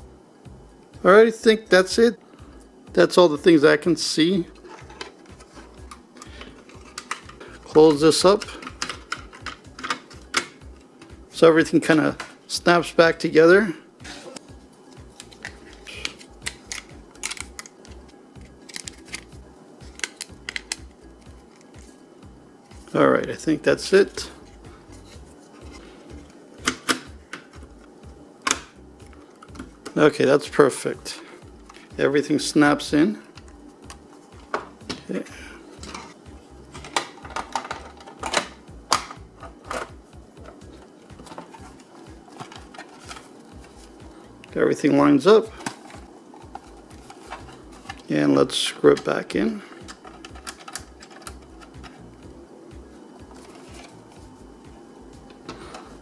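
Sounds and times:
plastic clicks and snaps: 19.9s - 20.9s.

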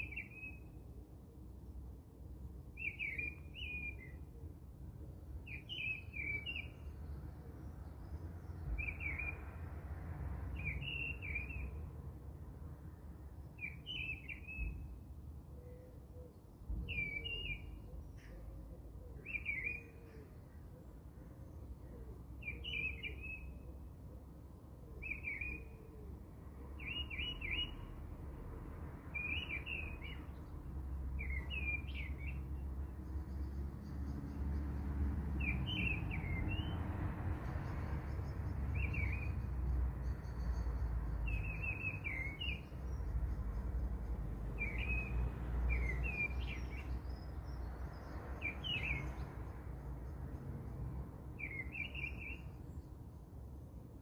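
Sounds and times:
small bird chirping: 37.6s - 50.3s.

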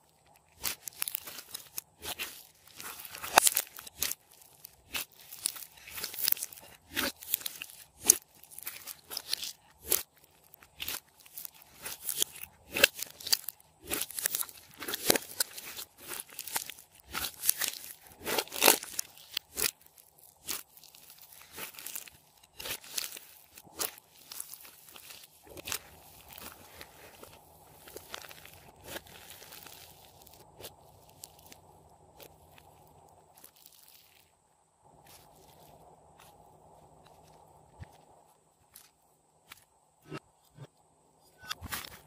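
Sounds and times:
slime crackling and popping: 0.1s - 32.7s.

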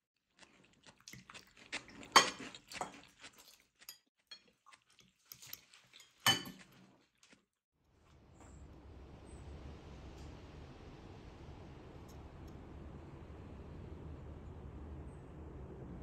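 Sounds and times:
cutlery and dishes clinking: 5.3s - 6.8s
dishes clattering: 6.2s - 6.6s.

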